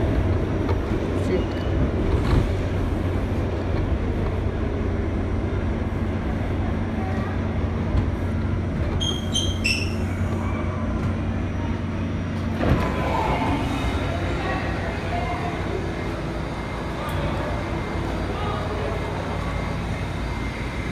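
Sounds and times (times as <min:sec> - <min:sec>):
subway train rumbling: 0:00.0 - 0:20.9
train brakes squealing: 0:09.0 - 0:10.2.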